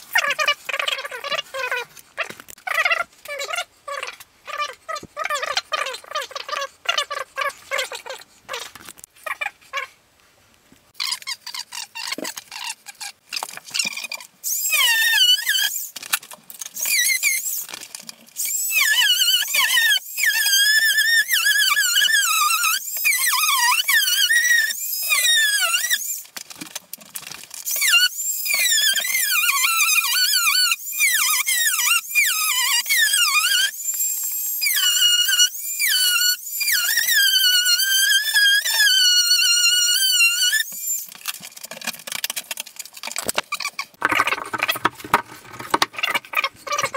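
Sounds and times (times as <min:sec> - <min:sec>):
sped-up squeaky voices: 0:00.2 - 0:08.7, 0:45.5 - 0:46.9.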